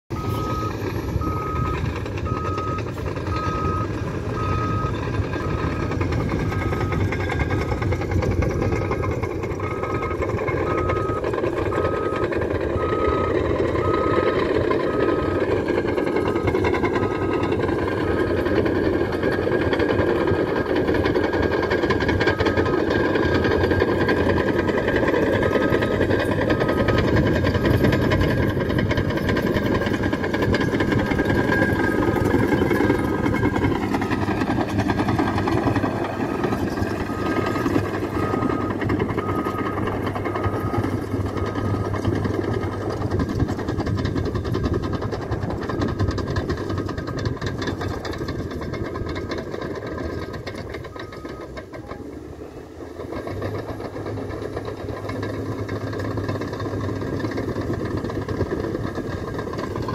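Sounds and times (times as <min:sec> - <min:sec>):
diesel bulldozer engine running: 0:00.1 - 0:59.9
back-up alarm beeping: 0:00.2 - 0:07.8, 0:08.6 - 0:21.2, 0:22.2 - 0:28.0.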